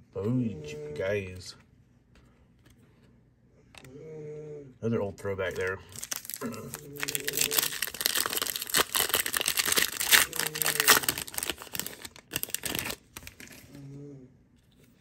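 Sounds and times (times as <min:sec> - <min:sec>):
foil wrapper crinkling and tearing: 0:05.5 - 0:13.8.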